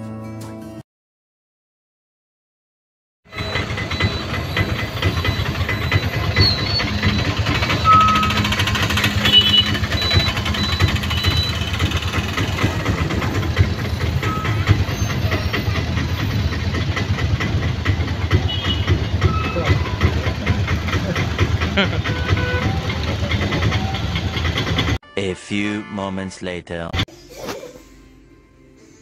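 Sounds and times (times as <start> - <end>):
road and traffic noise: 3.3 - 25.0
vehicle engine running: 3.3 - 25.0.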